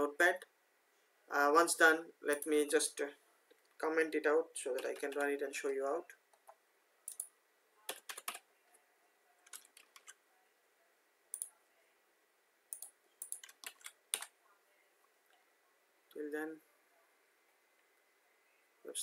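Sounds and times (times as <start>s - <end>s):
faint keyboard keystrokes: 9.4s - 10.2s.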